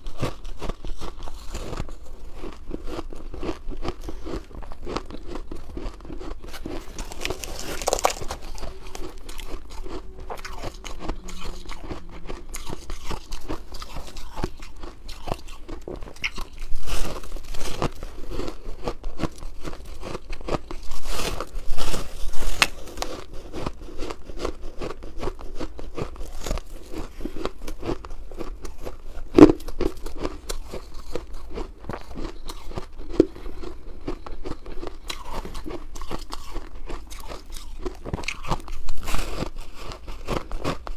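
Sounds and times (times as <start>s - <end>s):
shaved ice crunching: 6.5s - 15.5s, 20.0s - 23.3s.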